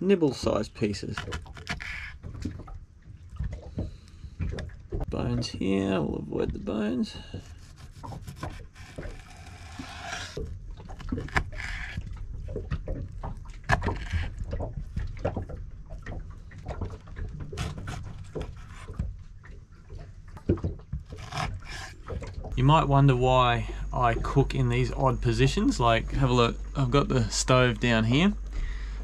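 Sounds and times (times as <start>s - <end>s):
knife scraping: 1.1s - 2.2s, 7.4s - 10.4s, 11.0s - 12.0s, 13.7s - 14.4s, 17.6s - 19.0s, 21.1s - 22.1s
steady low rumble: 22.0s - 29.0s.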